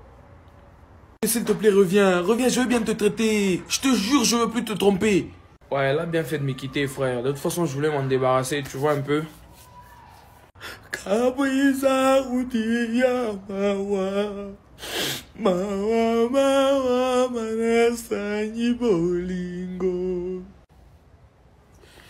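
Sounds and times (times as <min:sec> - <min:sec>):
sharp noisy breath: 0:10.5 - 0:10.9, 0:14.8 - 0:15.4, 0:21.7 - 0:22.0.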